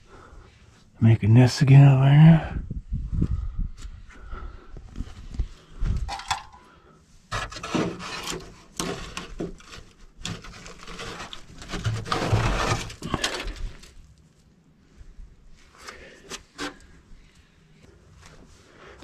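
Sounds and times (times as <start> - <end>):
handling knocks and clatter: 6.0 - 6.6, 7.3 - 13.9
rustling: 7.3 - 19.0.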